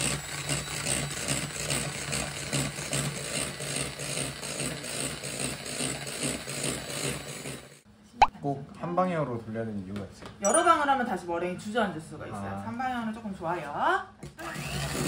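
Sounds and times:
electric hand mixer running: 0.0 - 7.8, 14.4 - 15.0.

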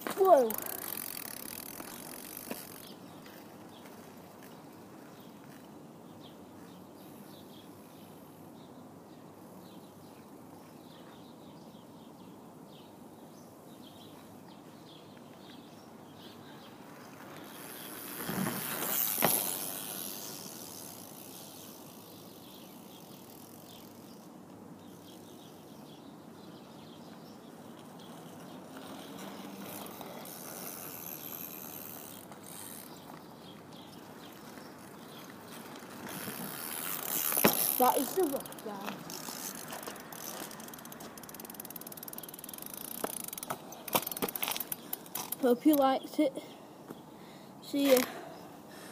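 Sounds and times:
bicycle freewheel ticking: 0.2 - 2.9, 17.4 - 24.2, 28.9 - 33.0, 35.9 - 45.9.

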